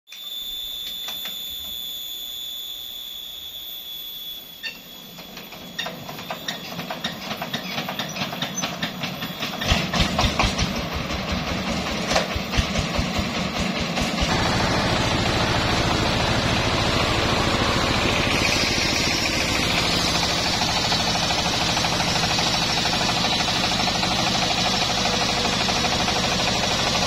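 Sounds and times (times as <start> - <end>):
steady high-pitched tone: 0.1 - 7.3, 14.3 - 27.0
diesel engine starting and chugging: 5.5 - 27.0.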